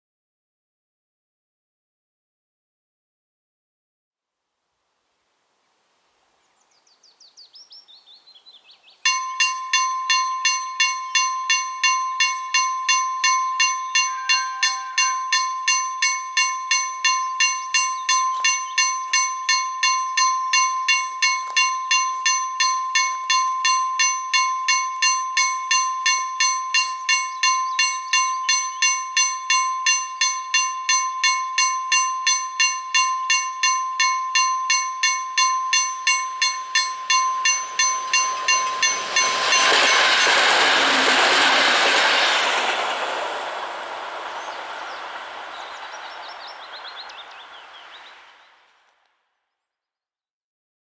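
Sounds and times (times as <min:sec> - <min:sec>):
level crossing bell ringing: 0:09.0 - 0:41.9.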